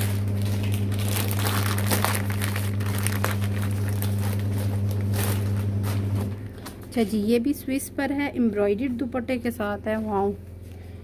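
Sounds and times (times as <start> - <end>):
plastic packaging crinkling: 0.0 - 7.1
steady low hum: 0.0 - 11.0.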